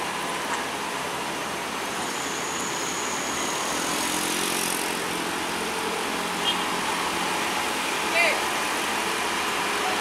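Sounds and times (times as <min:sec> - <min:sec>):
traffic hiss: 0:00.0 - 0:10.0.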